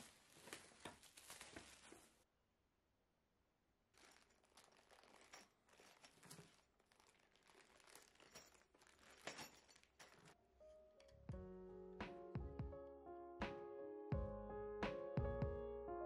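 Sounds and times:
packaging crinkling: 0:00.0 - 0:02.2, 0:03.9 - 0:10.3.

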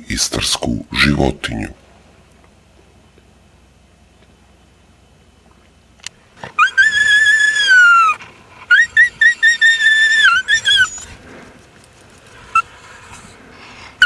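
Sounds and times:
dog whining: 0:06.4 - 0:11.2, 0:12.5 - 0:13.4.

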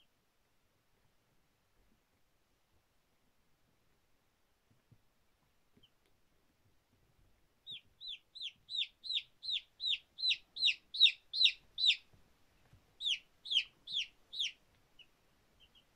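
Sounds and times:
baby chicks peeping: 0:05.7 - 0:06.2, 0:06.9 - 0:15.9.

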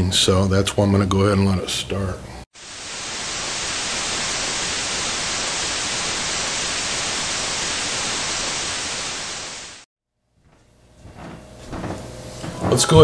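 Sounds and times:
tv static hiss: 0:02.6 - 0:09.9.

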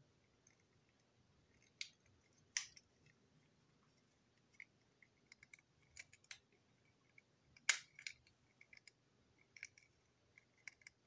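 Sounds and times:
plastic model parts clicking: 0:04.5 - 0:06.5, 0:07.1 - 0:11.0.

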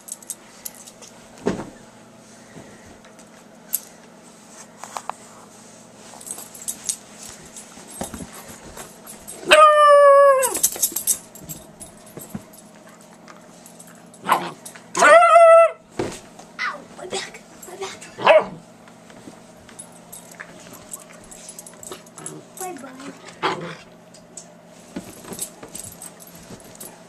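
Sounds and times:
dog high-pitched cries: 0:09.4 - 0:10.6, 0:15.0 - 0:15.8.

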